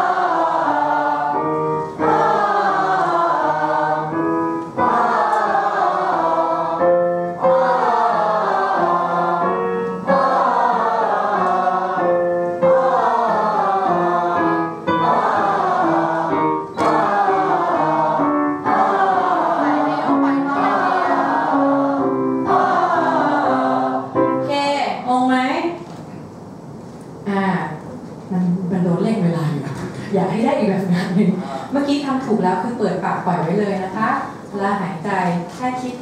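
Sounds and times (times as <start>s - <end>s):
group of voices singing: 0.0s - 24.2s.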